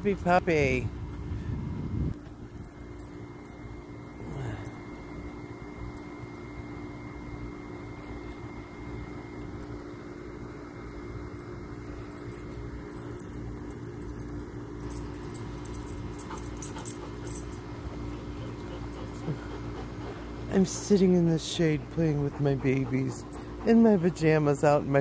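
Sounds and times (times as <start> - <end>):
steady low hum: 0.0 - 25.0
dog collar tags jingling: 10.4 - 19.4.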